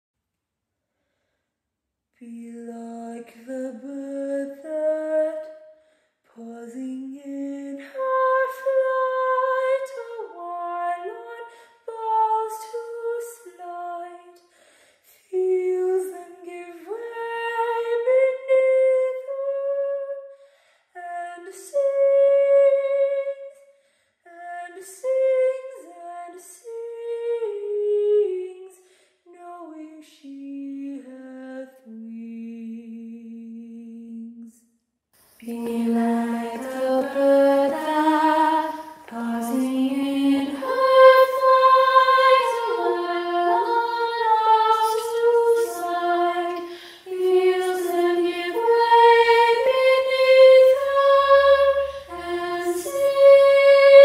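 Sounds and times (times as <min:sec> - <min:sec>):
woman singing unaccompanied: 0:02.2 - 0:05.5, 0:06.3 - 0:14.3, 0:15.3 - 0:20.2, 0:21.0 - 0:23.4, 0:24.3 - 0:34.4, 0:35.4 - 0:54.0
women's choir singing: 0:07.5 - 0:13.4, 0:35.4 - 0:54.0.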